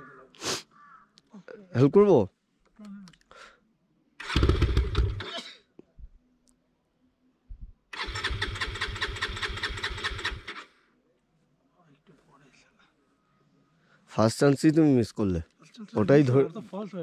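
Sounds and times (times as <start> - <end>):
motorcycle engine cranking: 4.2 - 5.3, 7.9 - 10.6.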